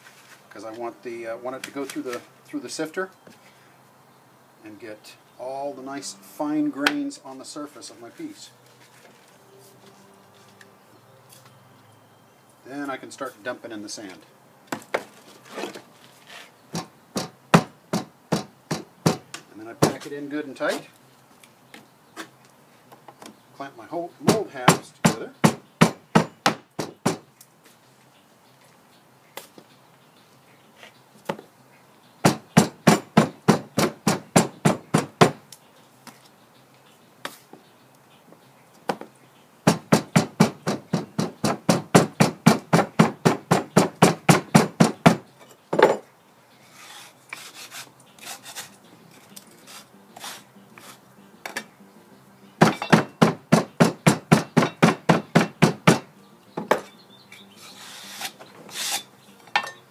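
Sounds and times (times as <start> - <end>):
soft taps and scraping: 36.0 - 37.7.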